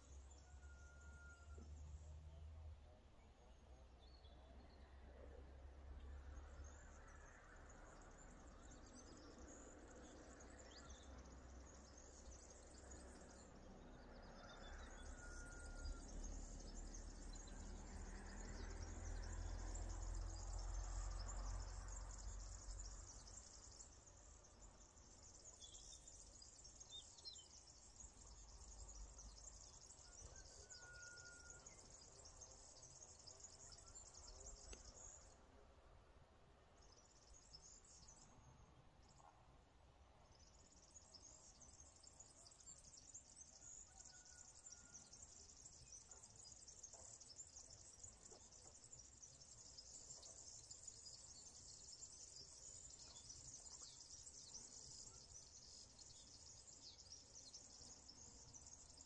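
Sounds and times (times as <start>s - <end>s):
thin bird chirps: 40.5s - 59.0s.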